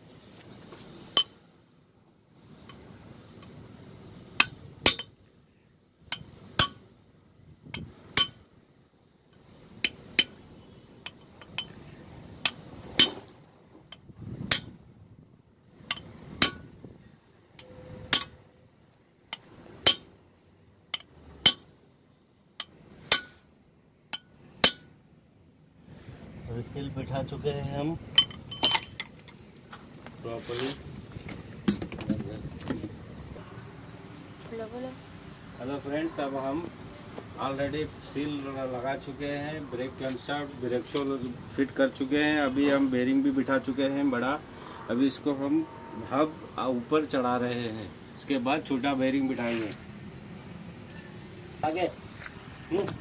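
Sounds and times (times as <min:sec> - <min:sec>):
soft handling noise: 0:28.4 - 0:33.4, 0:49.3 - 0:50.0.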